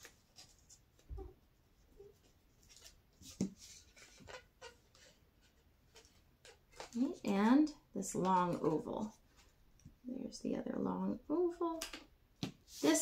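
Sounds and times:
paper rubbing and rustling: 2.1s - 7.2s.

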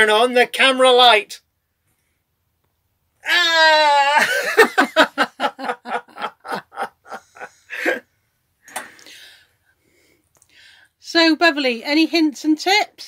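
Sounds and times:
woman laughing hard: 4.1s - 8.0s.

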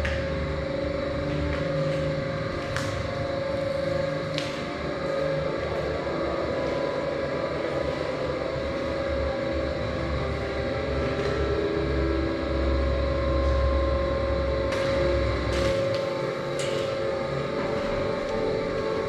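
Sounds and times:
dark ambient drone music: 0.0s - 19.0s.

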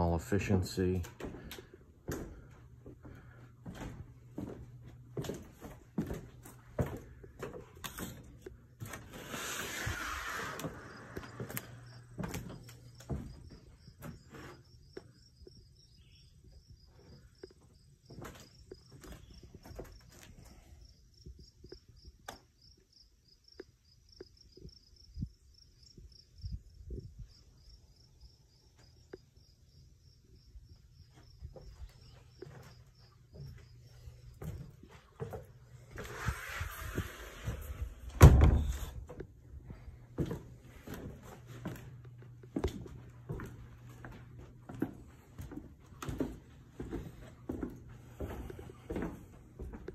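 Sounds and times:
footsteps on wooden boards: 0.9s - 15.6s, 16.3s - 21.8s, 31.1s - 49.9s
insects chirping: 9.9s - 36.2s.

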